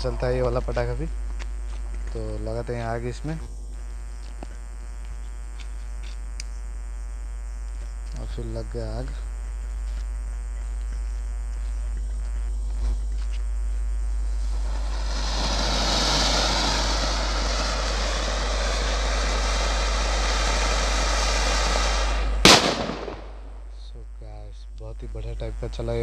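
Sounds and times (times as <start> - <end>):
firework hissing sparks: 14.0 - 23.7.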